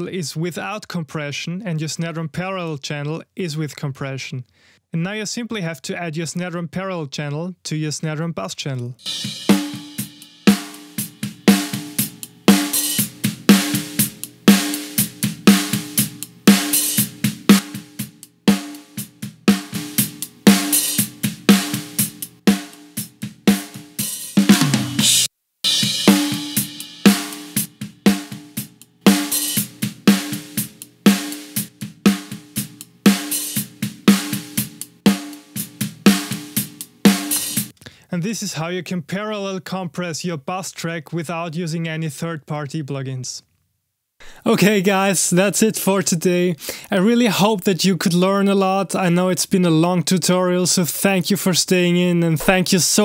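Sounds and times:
bright cymbal hit: 0:09.0 - 0:17.0, 0:25.0 - 0:28.4, 0:37.1 - 0:37.7
drum fill falling in pitch: 0:09.0 - 0:37.7
drum groove with heavy snare: 0:09.0 - 0:37.8, 0:44.2 - 0:48.3, 0:52.2 - 0:53.0.

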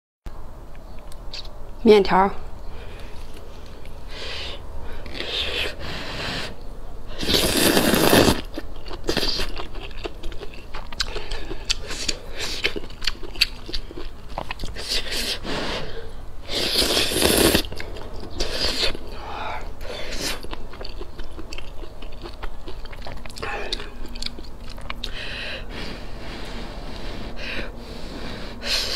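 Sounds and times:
wet chewing and mouth clicks: 0:00.7 - 0:01.6, 0:07.2 - 0:25.7
loud noodle slurps: 0:07.2 - 0:09.5, 0:14.7 - 0:19.0.

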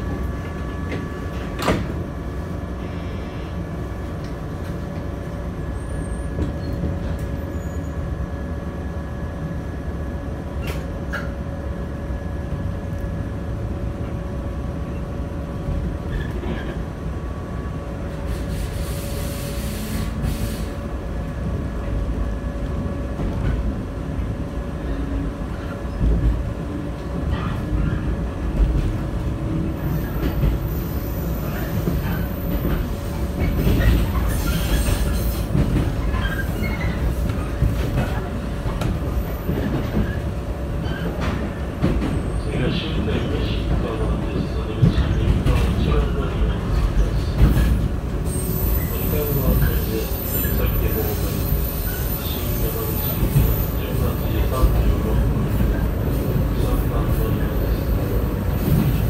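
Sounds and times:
train interior running noise: 0:00.0 - 0:59.0
hiss of air: 0:18.3 - 0:20.8.

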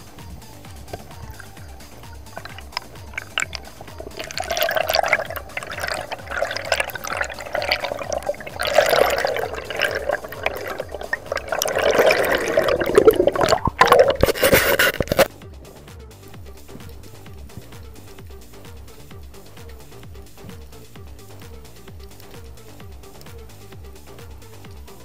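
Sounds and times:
bubbles rising: 0:00.8 - 0:15.3
water rushing underwater: 0:01.0 - 0:15.3.

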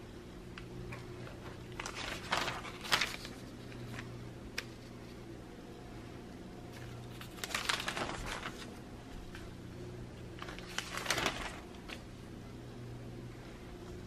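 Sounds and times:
low steady hum: 0:00.0 - 0:14.0
paper pages rustling: 0:01.3 - 0:05.2, 0:06.7 - 0:09.4, 0:10.4 - 0:12.1.

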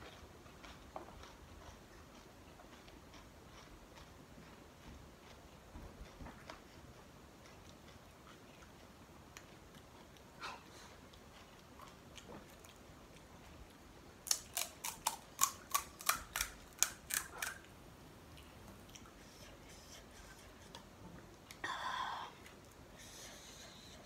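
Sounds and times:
fried shells cracking: 0:14.2 - 0:17.6.

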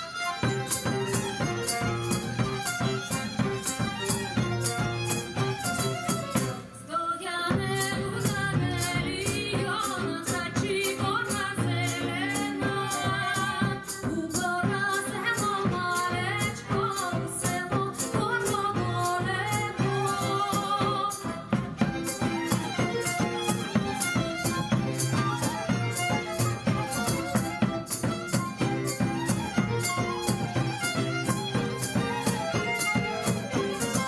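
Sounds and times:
violin: 0:00.0 - 0:34.0
acoustic guitar: 0:00.2 - 0:34.0
frame drum beat: 0:00.3 - 0:06.6, 0:07.5 - 0:34.0
woman singing with vibrato: 0:06.4 - 0:22.1
flute: 0:24.0 - 0:29.0.

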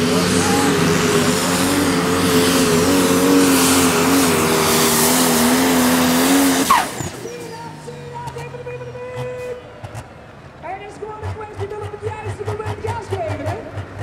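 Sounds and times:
diesel tractor engine running under load: 0:00.0 - 0:14.0
turbo and exhaust rush: 0:00.0 - 0:14.0.

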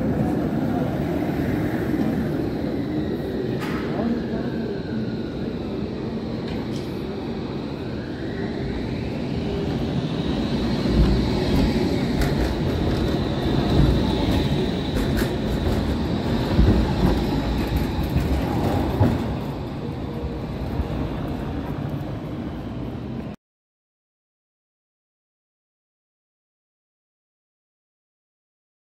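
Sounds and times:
tram wheels rumbling on rails: 0:00.0 - 0:23.4.

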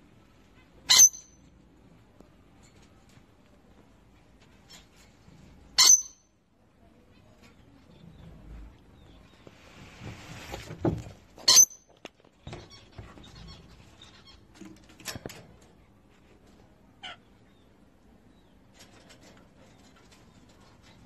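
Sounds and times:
parrot screech: 0:05.8 - 0:06.1.

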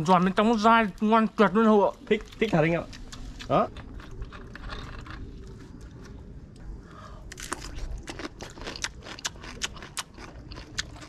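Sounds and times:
crunching raw vegetable: 0:01.9 - 0:06.3, 0:07.2 - 0:11.0.

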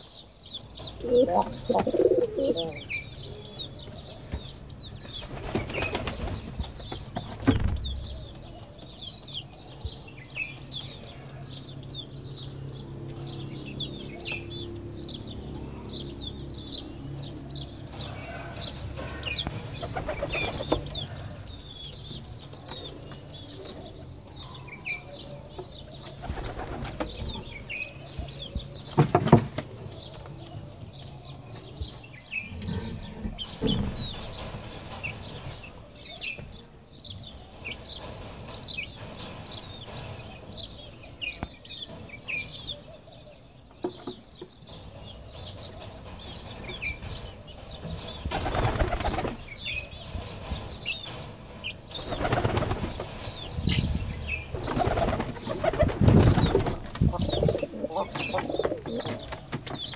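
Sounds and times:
small birds chirping: 0:00.0 - 0:59.9
pigeon wings flapping: 0:48.3 - 0:49.4, 0:52.0 - 0:53.1.

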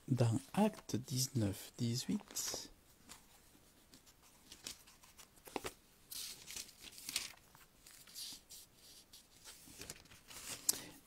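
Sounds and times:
paper pages rustling: 0:02.1 - 0:10.7.

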